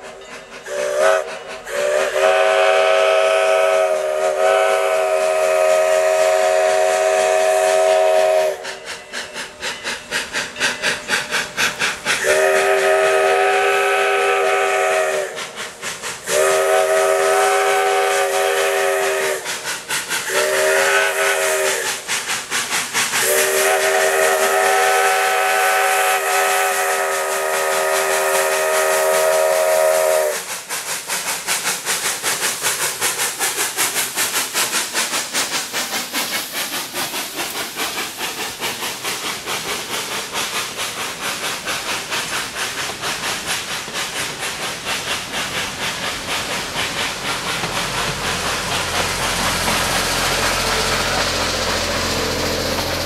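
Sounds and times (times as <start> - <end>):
steam locomotive chime whistle: 0.0 - 11.6, 12.2 - 15.6, 16.2 - 19.6, 20.2 - 22.0, 23.2 - 30.5
steam exhaust chuffing: 0.0 - 53.0.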